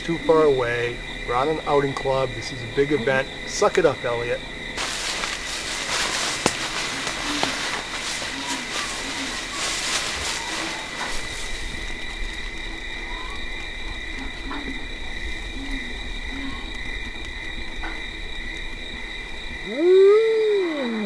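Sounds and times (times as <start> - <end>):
owl hooting: 5.2 - 11.8, 19.6 - 21.0
dog-like howl: 19.7 - 21.0.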